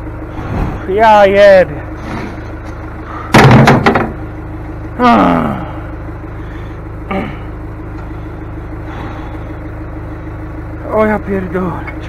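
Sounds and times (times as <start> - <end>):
engine idling: 0.0 - 12.0
knocks and clanks: 2.0 - 4.2
man groaning: 5.0 - 5.9, 7.0 - 7.6.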